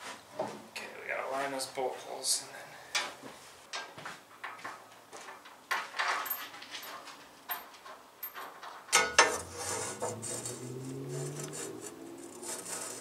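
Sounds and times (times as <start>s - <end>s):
sharp metal clack: 8.9s - 9.5s
low hum: 9.2s - 13.0s.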